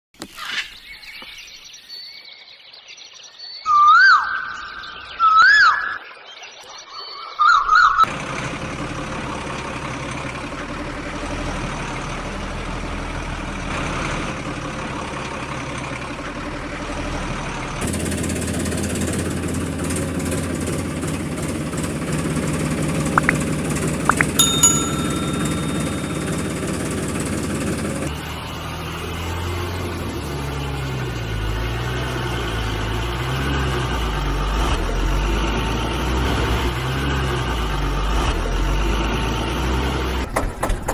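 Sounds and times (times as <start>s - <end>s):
heavy vehicle engine idling: 8.1s - 24.1s, 25.1s - 33.2s
brief chirping tone: 23.2s - 23.4s, 24.1s - 27.4s.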